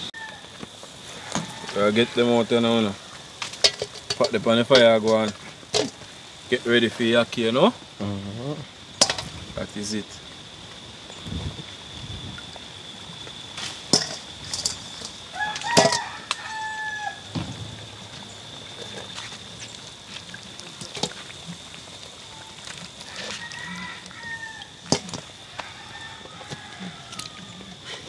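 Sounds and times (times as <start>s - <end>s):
rooster crowing: 0.0s - 3.2s, 15.2s - 18.0s, 23.1s - 28.0s
sharp knocks: 17.3s - 18.3s.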